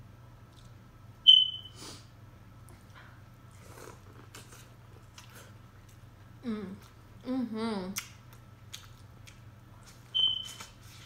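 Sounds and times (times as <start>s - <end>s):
sharp high-pitched squeak: 1.3s - 1.8s, 10.2s - 10.6s
chewing and mouth clicks: 3.5s - 6.0s, 8.0s - 10.8s.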